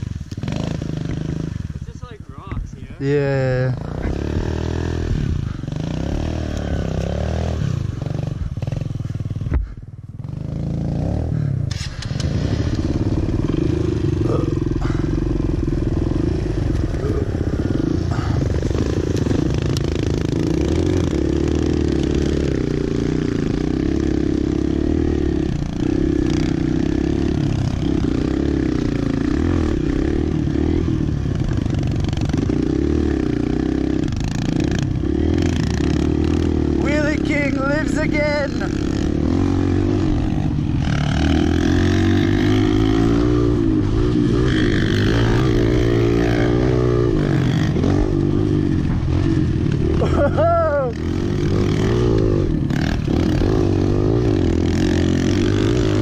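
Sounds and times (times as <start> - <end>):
dirt bike engines running: 0.0 - 56.0.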